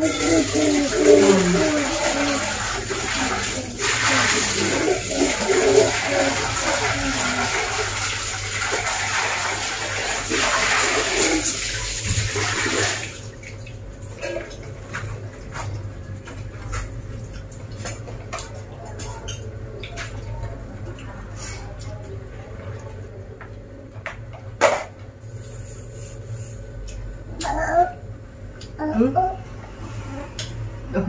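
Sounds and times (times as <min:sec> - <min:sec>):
water running: 0:00.0 - 0:23.0.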